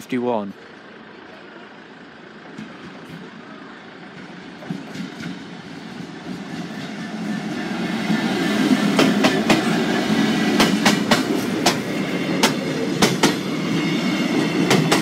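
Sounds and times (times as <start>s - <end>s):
diesel locomotive engine: 0.0s - 15.0s
train wheels clacking over rail joints: 2.4s - 3.4s, 4.1s - 15.0s.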